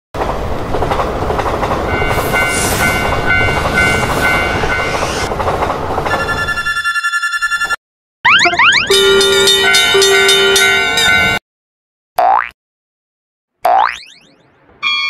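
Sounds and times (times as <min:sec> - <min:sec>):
train cars rumbling on track: 0:00.2 - 0:06.8, 0:08.9 - 0:11.4
railroad crossing bell dinging: 0:01.9 - 0:05.3, 0:08.9 - 0:11.4.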